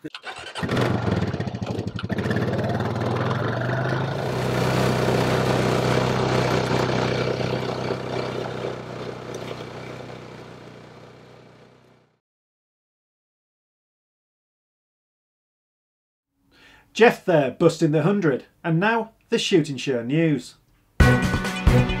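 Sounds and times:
quad bike engine running: 0:00.1 - 0:12.2.

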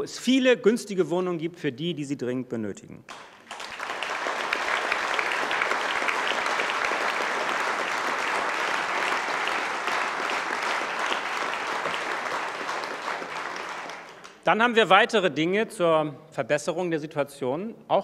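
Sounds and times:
audience applauding: 0:03.1 - 0:14.4.

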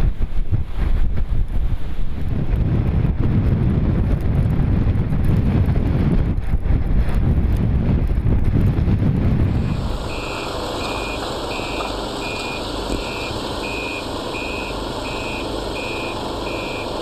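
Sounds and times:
background rumble: 0:00.0 - 0:17.0
wind buffeting microphone: 0:00.0 - 0:17.0
reversing alarm beeping: 0:10.0 - 0:17.0.

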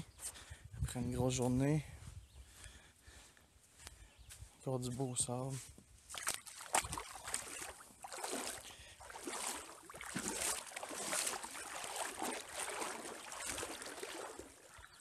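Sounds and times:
small waves lapping on a beach: 0:06.0 - 0:15.0.

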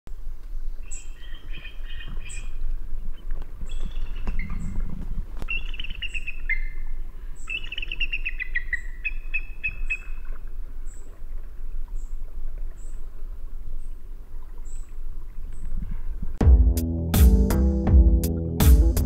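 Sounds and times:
birds chirping and trilling: 0:00.8 - 0:10.3
thin high bird chirp: 0:05.5 - 0:10.2.

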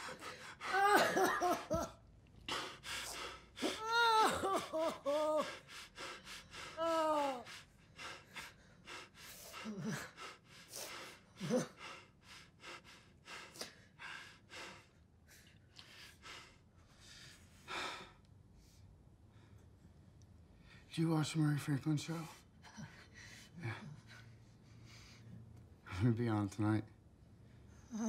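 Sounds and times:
man breathing hard: 0:00.0 - 0:00.8, 0:02.4 - 0:03.8, 0:04.9 - 0:19.6
man moaning: 0:03.6 - 0:05.6, 0:06.8 - 0:07.5.

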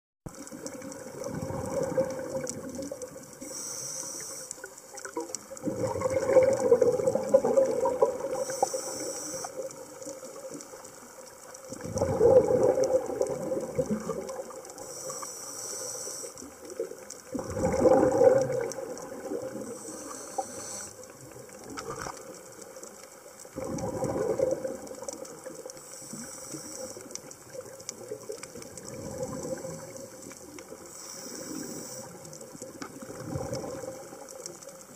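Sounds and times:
rush of bubbles on exhale: 0:00.3 - 0:22.7, 0:23.4 - 0:34.9
regulator hiss on inhale: 0:03.3 - 0:05.1, 0:08.2 - 0:10.1, 0:14.6 - 0:17.2, 0:19.5 - 0:21.2, 0:25.7 - 0:27.5, 0:29.3 - 0:32.7.

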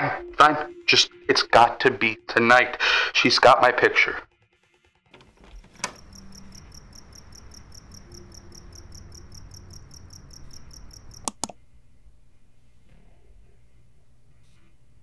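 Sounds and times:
low hum: 0:04.2 - 0:15.0
cricket chirping: 0:05.5 - 0:11.4
sharp click: 0:11.1 - 0:11.6.

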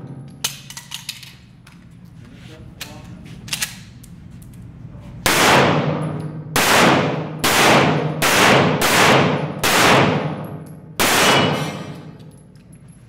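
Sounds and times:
pistol shots echoing indoors: 0:05.2 - 0:12.6.

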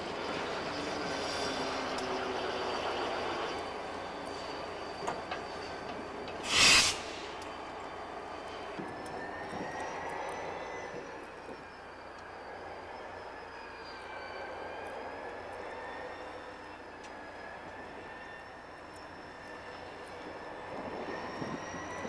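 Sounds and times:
diesel locomotives approaching: 0:00.0 - 0:22.0
high whine: 0:06.3 - 0:07.8.

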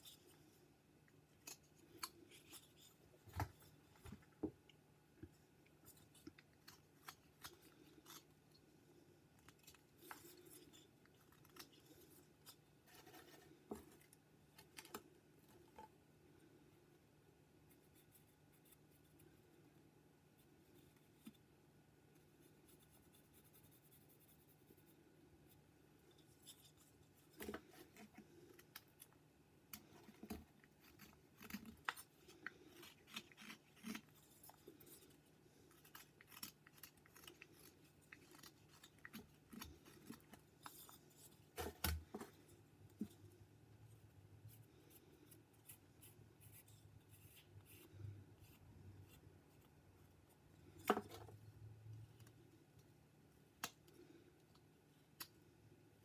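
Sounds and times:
knife cutting wood shavings: 0:29.8 - 0:41.0.

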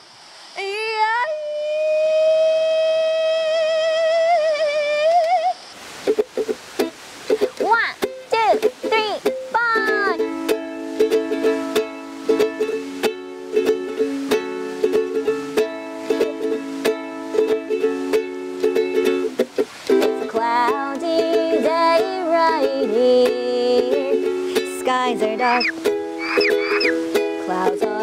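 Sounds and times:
woman singing: 0:00.6 - 0:05.6, 0:08.3 - 0:10.3, 0:20.0 - 0:25.9, 0:27.2 - 0:28.0
ukulele strumming: 0:06.0 - 0:28.0
acoustic guitar strumming: 0:24.2 - 0:28.0.

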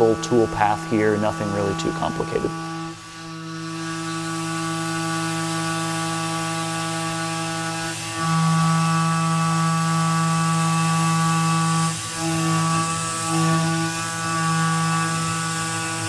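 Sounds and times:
milling machine cutting metal: 0:00.0 - 0:16.0.

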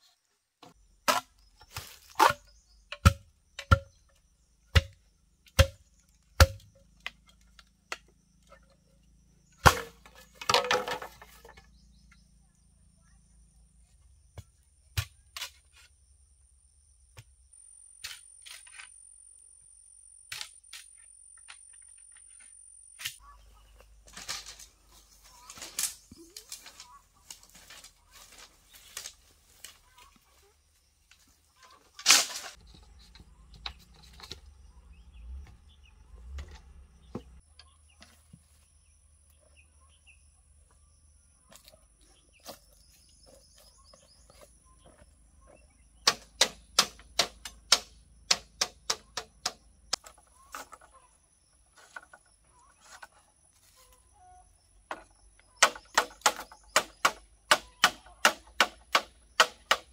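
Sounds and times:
machete chopping bamboo: 0:01.0 - 0:04.0, 0:04.7 - 0:08.0, 0:09.6 - 0:11.2, 0:14.4 - 0:15.7, 0:46.0 - 0:50.7, 0:55.6 - 0:59.9.

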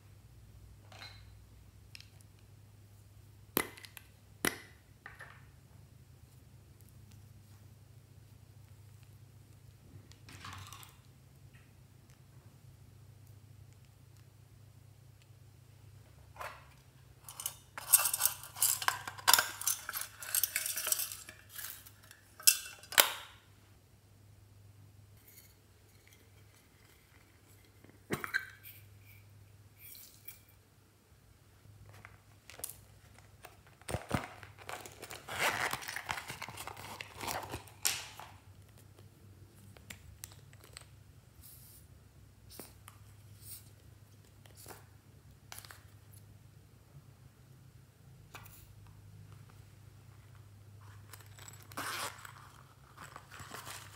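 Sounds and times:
tin box clinking and rattling: 0:17.2 - 0:23.3, 0:51.0 - 0:53.9.

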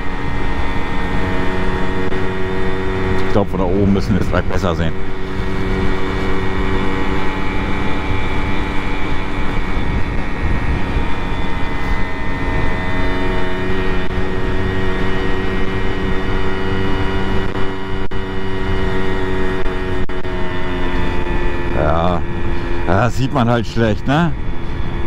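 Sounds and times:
moped engine running: 0:00.0 - 0:25.0
wind noise on microphone: 0:05.0 - 0:13.0, 0:24.2 - 0:25.0.

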